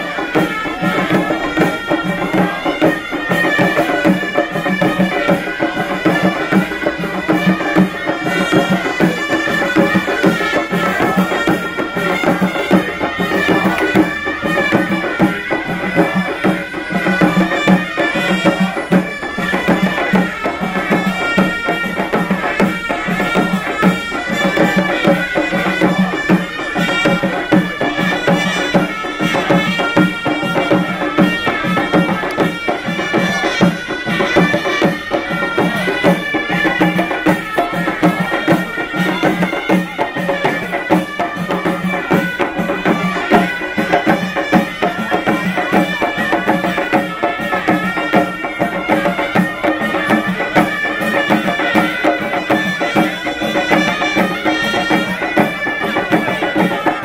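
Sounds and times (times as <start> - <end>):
fast drumming: 0.0 - 57.0
reedy wind instrument melody: 0.0 - 57.0.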